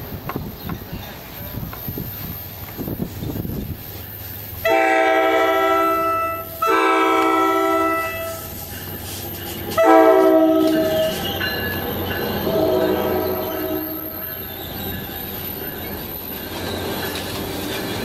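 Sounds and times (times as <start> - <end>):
locomotive rumble: 0.0 - 18.0
locomotive air horn blasts: 4.6 - 8.6, 9.7 - 11.3, 12.5 - 14.2.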